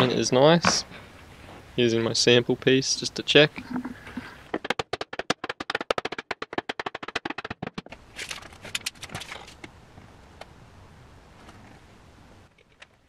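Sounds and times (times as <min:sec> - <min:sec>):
scraping and knocking: 0:03.6 - 0:09.6
rapid sharp clicks: 0:04.5 - 0:09.5.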